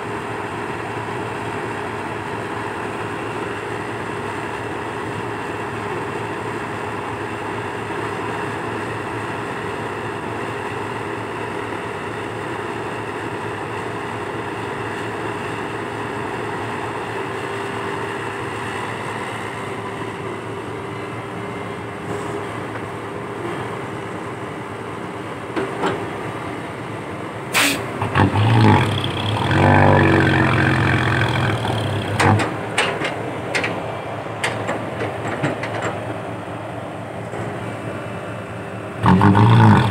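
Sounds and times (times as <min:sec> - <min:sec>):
excavator diesel engine running: 0:00.0 - 0:39.9
hydraulic whine: 0:27.5 - 0:32.8, 0:39.0 - 0:39.9.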